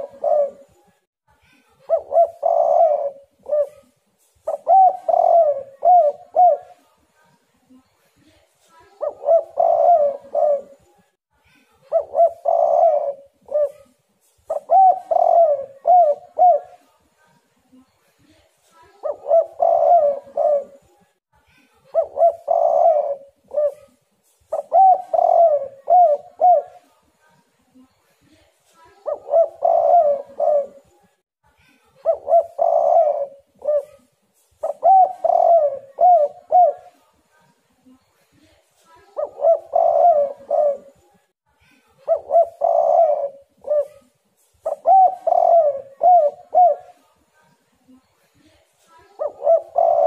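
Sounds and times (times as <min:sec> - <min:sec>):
dove cooing: 0:00.0 - 0:01.0, 0:01.9 - 0:06.8, 0:09.0 - 0:10.9, 0:11.9 - 0:16.9, 0:19.0 - 0:21.0, 0:21.9 - 0:26.9, 0:29.0 - 0:31.0, 0:32.0 - 0:37.0, 0:39.2 - 0:41.1, 0:42.1 - 0:47.0, 0:49.1 - 0:50.0.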